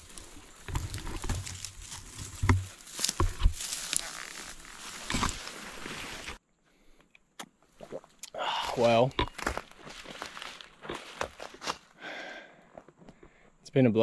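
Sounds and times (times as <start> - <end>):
stems snapping: 0.0 - 5.4
dry fern rustling and crackling: 0.0 - 6.4, 9.4 - 11.9.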